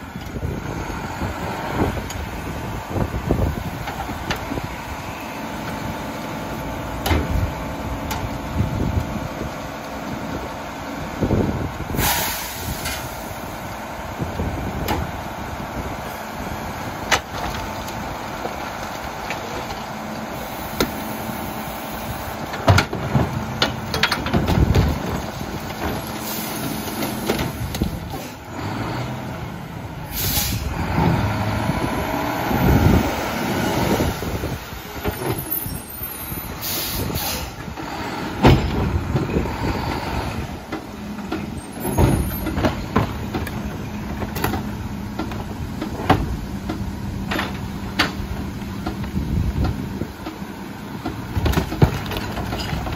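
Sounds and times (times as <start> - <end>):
diesel engine under load: 0.0 - 52.9
air brakes hissing: 11.9 - 13.5, 26.2 - 27.2, 30.1 - 30.7, 35.4 - 37.7
carts clanking against hopper: 16.8 - 28.4, 34.0 - 52.9.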